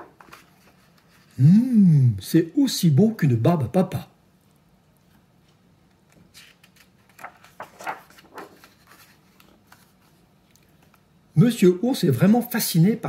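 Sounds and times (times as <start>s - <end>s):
paper page rustling: 0.0s - 1.4s, 6.1s - 11.0s.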